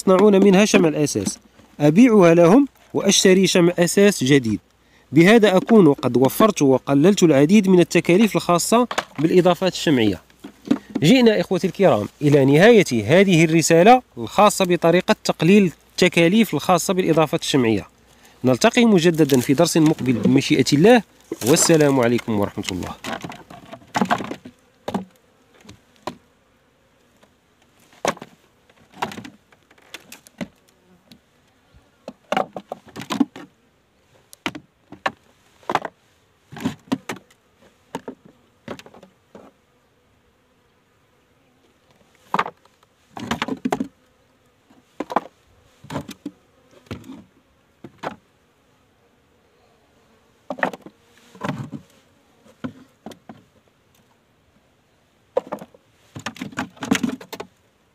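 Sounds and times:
honeybees buzzing: 0:00.0 - 0:57.9
sharp clicks and knocks: 0:08.8 - 0:09.4, 0:55.4 - 0:57.6.

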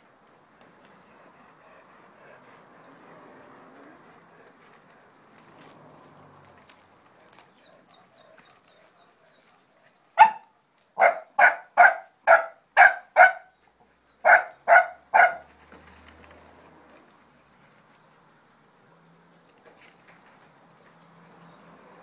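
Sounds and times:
dog barking: 0:10.2 - 0:13.5, 0:14.2 - 0:15.5.

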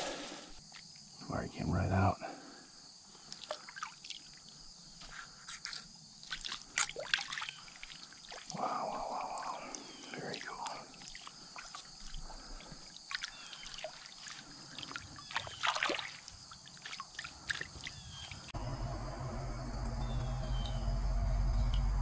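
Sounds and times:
insects chorus: 0:00.0 - 0:22.0
creek water trickling: 0:03.0 - 0:18.6
small splashes and clicks: 0:03.2 - 0:18.5
loud low rumble: 0:18.6 - 0:22.0.

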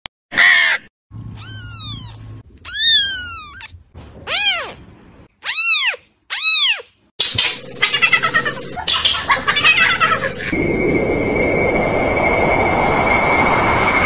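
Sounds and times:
kitten meowing: 0:01.4 - 0:04.8, 0:05.4 - 0:06.9.

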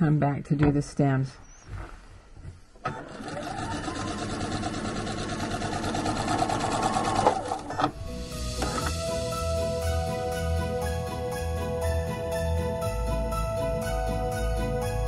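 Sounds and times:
sewing machine stitching: 0:02.8 - 0:08.0.

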